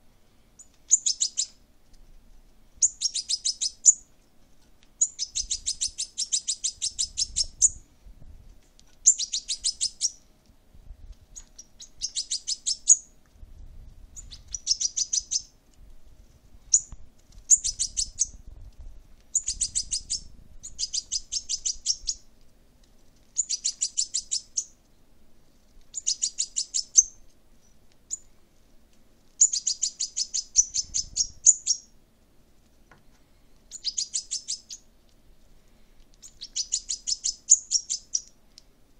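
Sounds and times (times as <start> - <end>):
fledgling bird begging chirps: 0.6 - 1.6, 2.8 - 4.1, 5.0 - 7.8, 9.0 - 10.3, 11.4 - 13.2, 14.2 - 15.6, 16.7 - 18.4, 19.3 - 22.2, 23.4 - 24.8, 25.9 - 28.3, 29.4 - 31.9, 33.7 - 34.9, 36.2 - 38.4.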